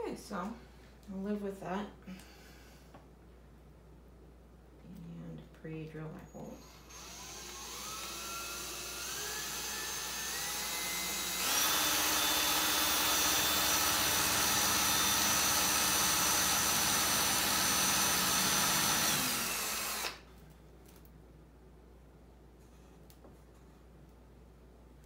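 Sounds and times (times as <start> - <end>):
cordless drill whine: 6.6 - 20.2.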